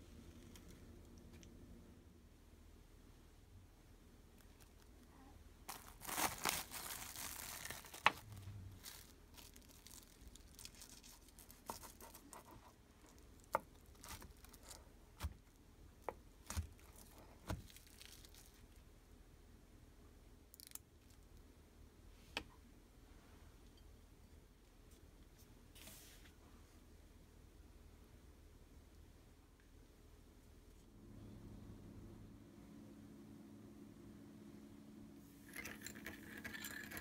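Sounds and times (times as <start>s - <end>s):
cling film crinkling: 5.7s - 14.8s, 16.4s - 18.8s.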